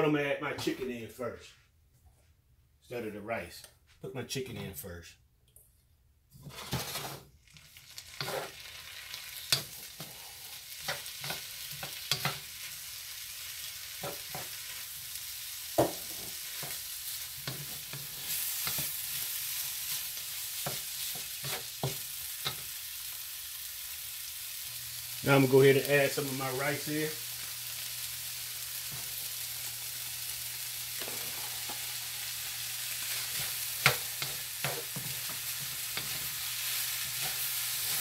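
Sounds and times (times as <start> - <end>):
wooden spatula scraping a pan: 6.4 - 7.3, 8.1 - 8.7, 17.4 - 22.6, 31.0 - 31.9
food sizzling in a wok: 6.5 - 38.0.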